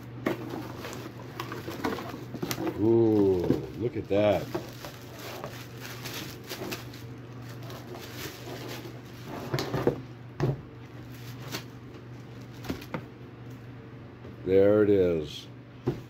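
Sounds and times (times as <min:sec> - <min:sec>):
steady low hum: 0:00.0 - 0:16.0
plastic bag crinkling: 0:00.4 - 0:09.4, 0:11.0 - 0:12.9.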